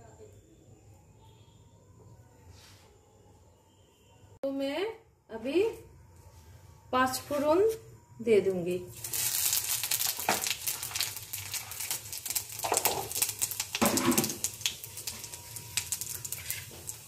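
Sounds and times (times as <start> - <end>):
seeds sizzling and popping in oil: 8.9 - 17.0.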